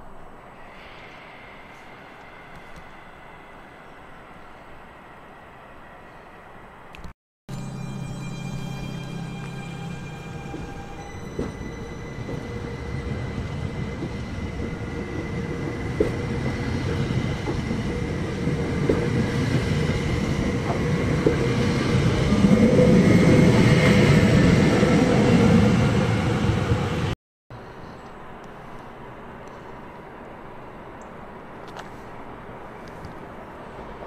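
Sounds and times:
train whine: 0.0 - 6.9, 7.5 - 27.2
train passing: 0.0 - 34.0.

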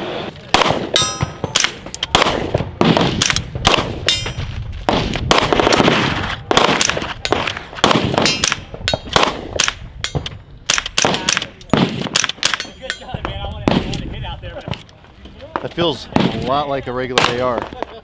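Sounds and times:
rifle shots: 0.4 - 12.7
steel targets ringing: 1.0 - 1.6.

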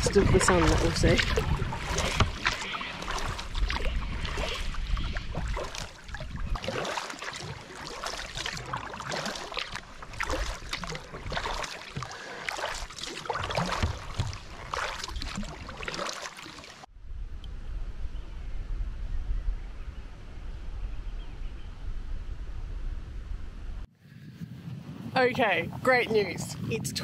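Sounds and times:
wind rumble on microphone: 0.0 - 6.8, 16.9 - 27.0
paddle splashing in water: 0.0 - 16.9
water lapping: 0.0 - 16.9.

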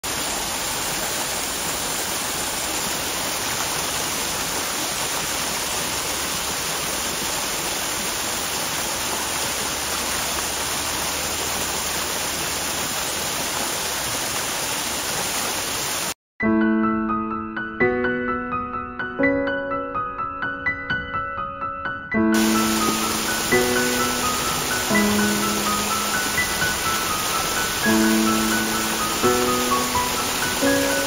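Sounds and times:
waterfall splashing on rocks: 0.0 - 16.2, 22.4 - 31.0
piano music: 16.4 - 31.0.

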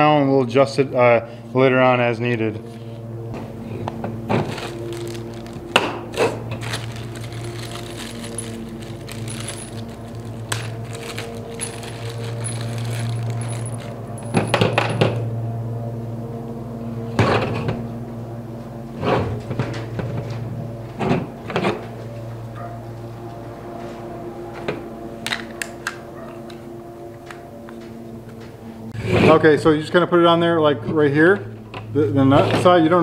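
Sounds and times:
steady low hum: 0.0 - 33.0
plastic bags crinkling: 4.4 - 14.6
metal bolts and nuts clinking: 6.6 - 15.2.

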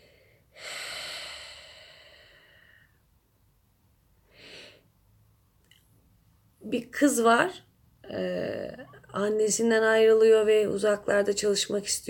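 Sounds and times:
woman breathing in: 0.0 - 3.1, 4.3 - 5.0.

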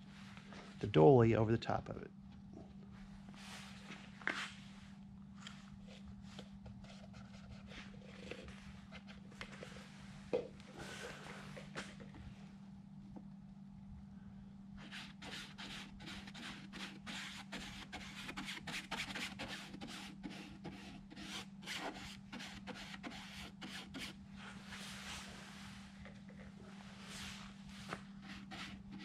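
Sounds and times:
paintbrush scratchy strokes on fabric: 26.8 - 29.0.

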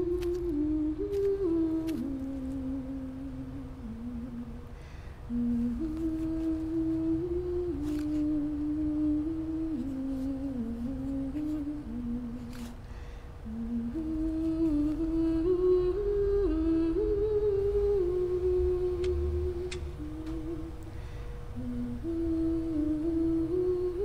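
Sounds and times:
person humming a melody: 0.0 - 12.8, 13.4 - 24.0
second higher humming voice: 13.4 - 24.0.

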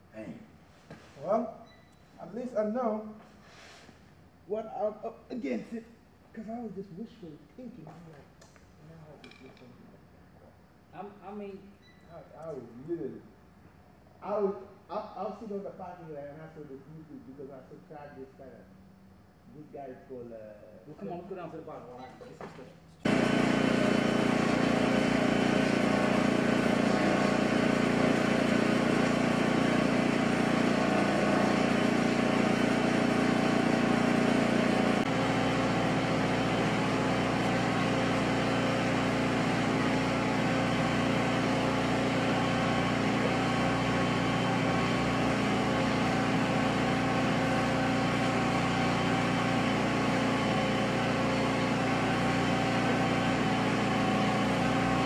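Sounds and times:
machine humming drone: 23.0 - 55.0.

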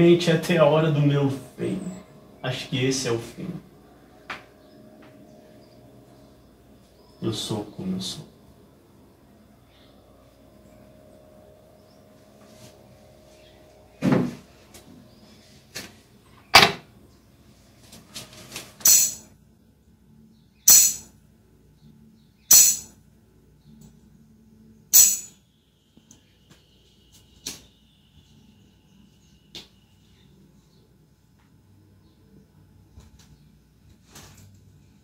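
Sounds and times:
tambourine struck: 18.8 - 19.3, 20.7 - 21.1, 22.5 - 22.9, 24.9 - 25.4.

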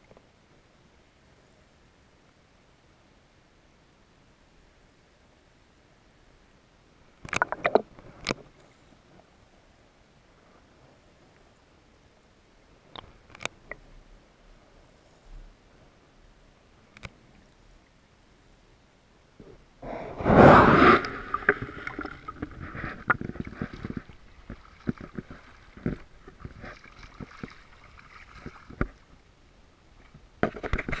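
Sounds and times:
loud water splash: 19.8 - 23.6
small waves at shore: 20.0 - 30.3.

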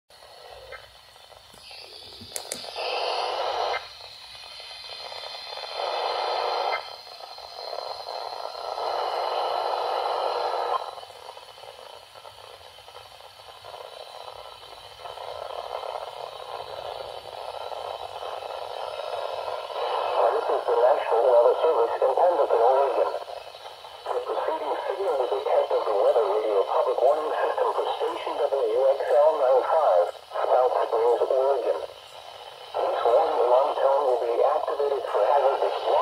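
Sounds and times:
radio static hiss: 0.1 - 36.0
bursts of radio noise: 19.7 - 23.3, 24.0 - 31.9.

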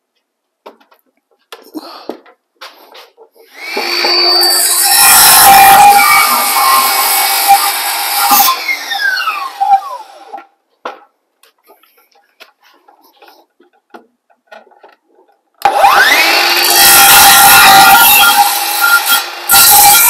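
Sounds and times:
circular saw cutting wood: 3.5 - 10.4, 15.6 - 20.0
saw blade whining down: 3.5 - 10.4, 15.6 - 20.0.

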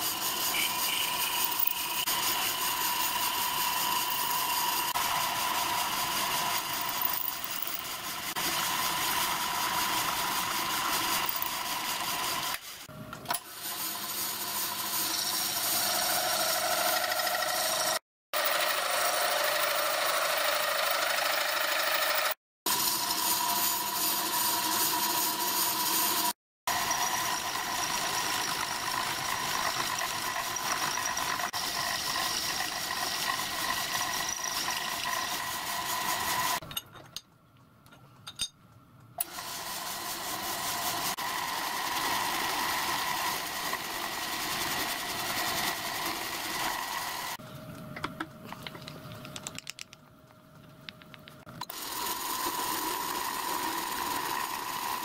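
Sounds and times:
pillar drill cutting metal: 0.0 - 12.1, 26.7 - 36.6, 40.3 - 47.4, 51.6 - 55.0.

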